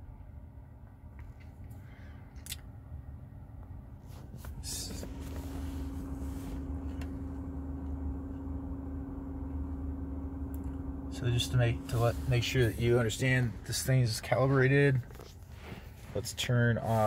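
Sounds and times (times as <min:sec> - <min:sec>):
car climate system hum: 0:00.0 - 0:17.0
steady droning tone: 0:04.4 - 0:17.0.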